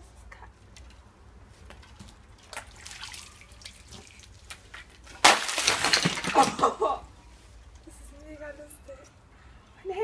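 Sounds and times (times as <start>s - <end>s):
water dripping and splashing: 1.7s - 6.5s.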